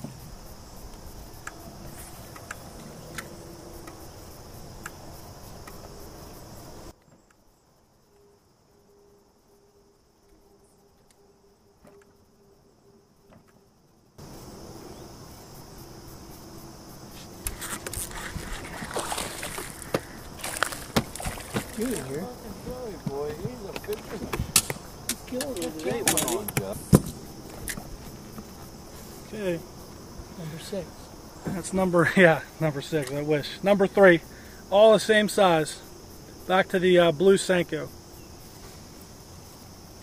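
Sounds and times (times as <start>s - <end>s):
high-pitched insect chorus: 0.0s - 40.0s
fishing rod cast: 17.2s - 22.2s.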